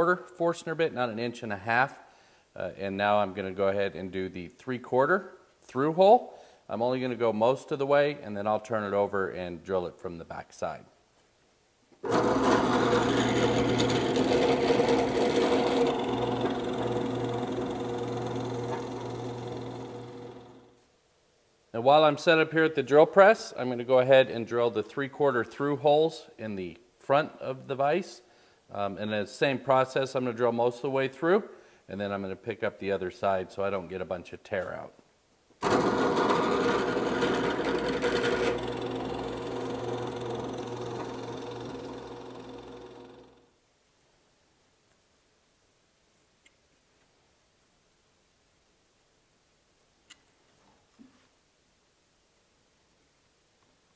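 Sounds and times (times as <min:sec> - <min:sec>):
drill bit rasping through wood: 0:12.0 - 0:20.7, 0:35.6 - 0:43.4
drill press motor hum: 0:12.0 - 0:20.7, 0:35.6 - 0:43.5.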